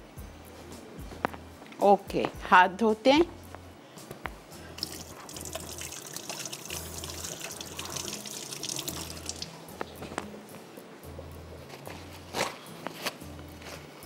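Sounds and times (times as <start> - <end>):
water running from tap: 4.8 - 9.6.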